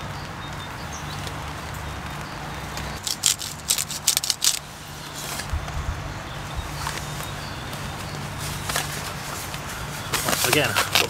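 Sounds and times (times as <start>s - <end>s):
clicks and rustles of gear: 3.0s - 4.6s, 8.6s - 11.0s.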